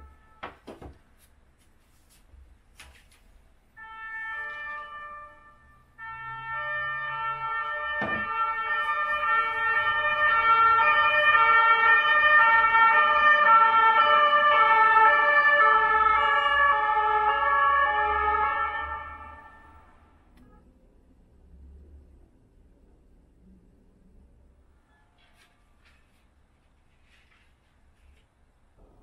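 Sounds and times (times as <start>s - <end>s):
two-tone emergency siren: 0.0s - 0.7s, 3.8s - 20.7s.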